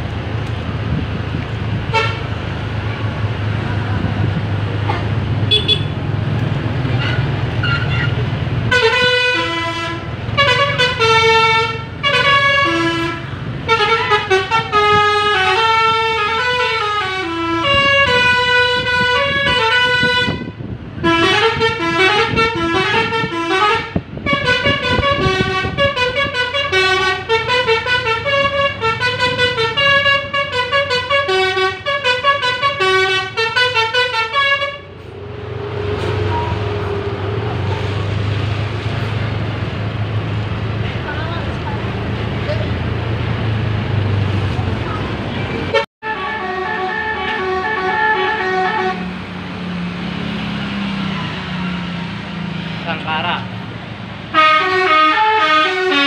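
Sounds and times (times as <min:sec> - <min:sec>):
bus engine running low: 0:00.0 - 0:56.0
bus air horns playing tune: 0:01.9 - 0:02.3, 0:05.5 - 0:06.0, 0:07.0 - 0:35.2, 0:45.7 - 0:49.3, 0:54.3 - 0:56.0.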